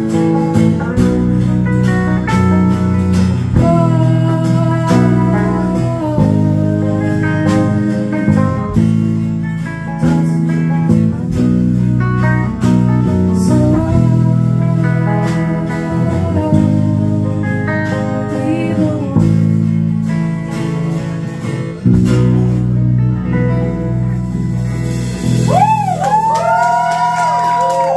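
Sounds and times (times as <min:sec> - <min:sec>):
acoustic guitar strumming: 0:00.0 - 0:26.0
woman singing: 0:03.4 - 0:08.7, 0:13.0 - 0:19.8.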